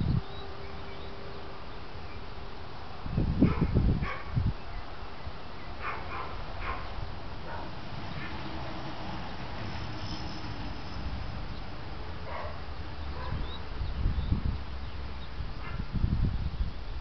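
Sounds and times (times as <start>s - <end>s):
dog barking: 3.5s - 4.4s, 5.8s - 8.3s, 12.2s - 12.6s, 13.2s - 13.4s.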